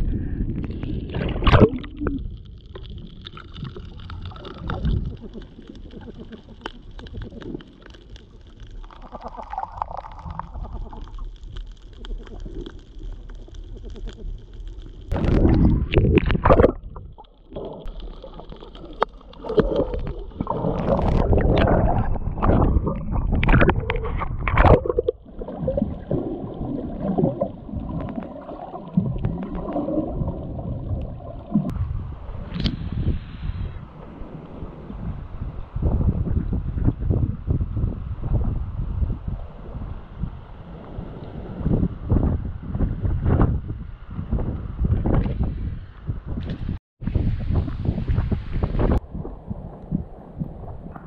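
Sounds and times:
muffled water gurgling and sloshing: 0:00.0 - 0:51.0
water surges and knocks: 0:00.6 - 0:32.7, 0:46.3 - 0:51.0.

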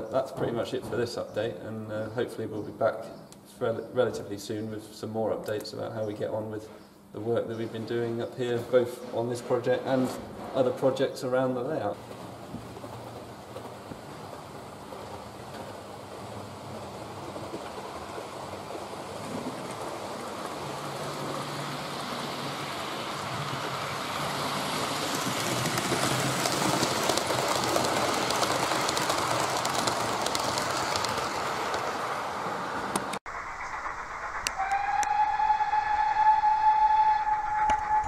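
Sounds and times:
model train rolling rumble: 0:07.7 - 0:38.0
wheels clicking on track: 0:07.8 - 0:35.2.

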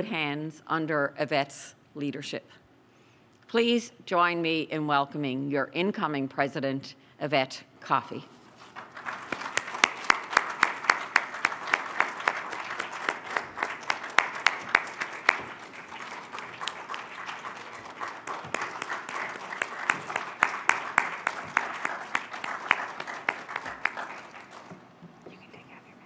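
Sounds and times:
applause: 0:08.6 - 0:24.9
single sharp claps: 0:09.3 - 0:24.8.

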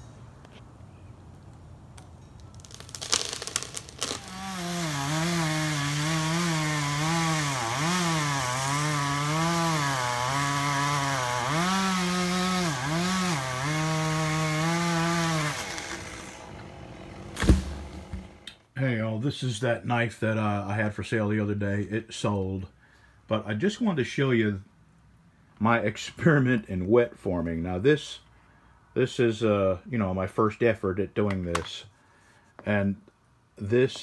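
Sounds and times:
chainsaw cutting wood: 0:02.6 - 0:18.5.

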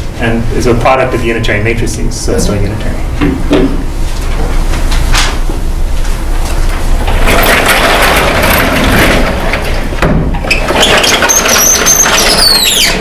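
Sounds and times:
sliding panel rumbling scrape: 0:06.5 - 0:13.0
high squeaks: 0:10.5 - 0:13.0.

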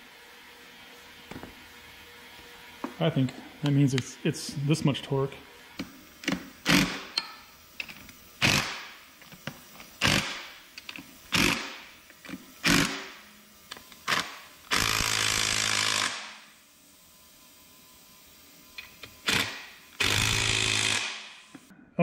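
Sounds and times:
power tool driving bolts: 0:05.8 - 0:16.5, 0:18.8 - 0:21.4.

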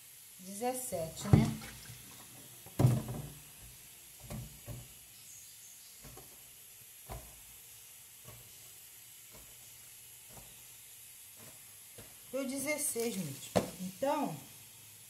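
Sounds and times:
muffled bump: 0:02.8 - 0:03.4.

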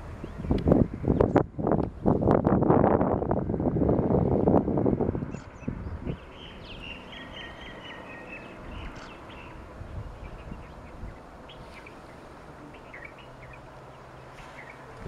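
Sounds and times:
distant train rumble: 0:00.0 - 0:15.0
small birds chirping: 0:05.2 - 0:15.0.

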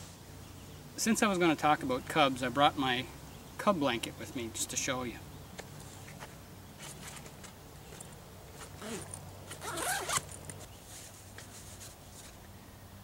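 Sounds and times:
bag rustling: 0:05.8 - 0:12.4
zipper pulled open: 0:07.9 - 0:10.7.

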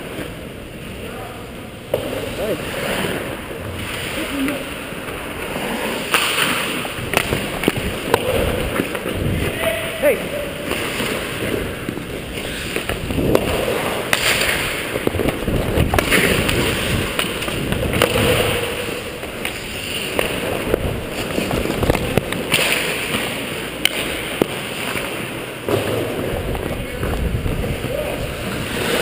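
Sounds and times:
sticks and puck clacking: 0:01.8 - 0:29.0
skate blades scraping ice: 0:02.0 - 0:29.0.

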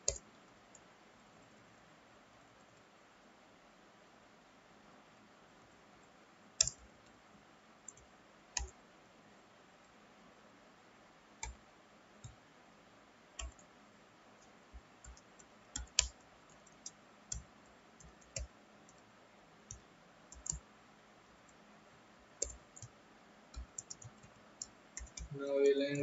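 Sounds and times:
computer keyboard keystrokes: 0:00.0 - 0:00.2, 0:06.6 - 0:06.8, 0:07.9 - 0:08.8, 0:13.4 - 0:13.7, 0:14.7 - 0:19.0, 0:19.7 - 0:20.6, 0:22.4 - 0:22.9, 0:23.5 - 0:26.0.

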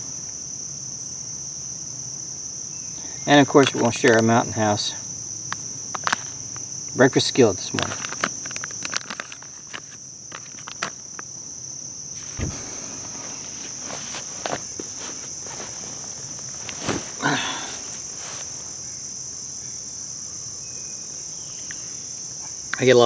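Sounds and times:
insects droning: 0:00.0 - 0:23.0
short rustle: 0:12.2 - 0:19.0.

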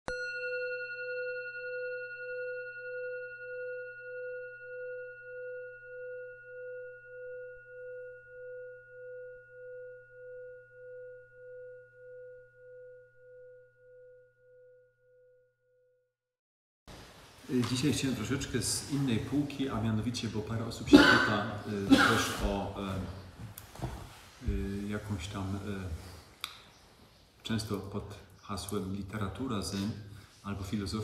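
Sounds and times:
meditation bowl ringing: 0:00.1 - 0:16.0.

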